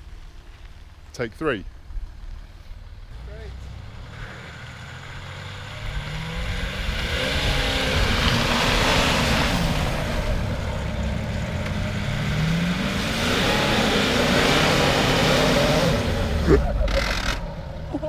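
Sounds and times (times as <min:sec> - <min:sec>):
engine revving hard: 0:04.1 - 0:10.7, 0:11.8 - 0:17.5.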